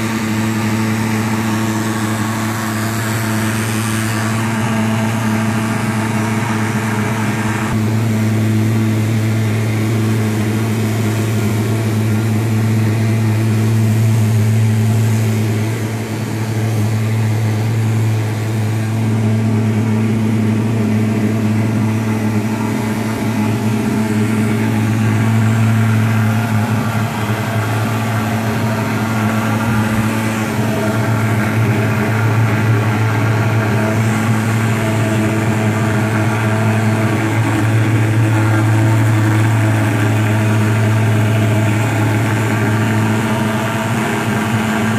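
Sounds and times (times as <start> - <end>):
thermal fogger drone: 0.0 - 44.9.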